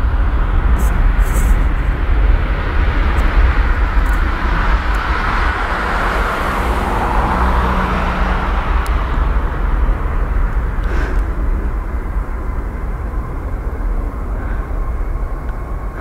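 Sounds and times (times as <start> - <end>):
jet engines rumbling at takeoff: 0.0 - 16.0.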